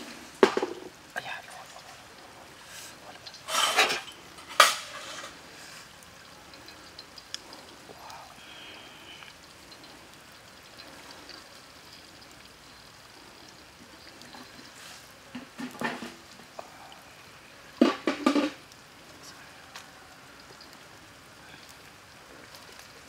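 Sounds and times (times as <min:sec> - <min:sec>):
faint sizzle of frying: 0:00.0 - 0:23.0
metal tongs clattering against wok: 0:03.1 - 0:05.4.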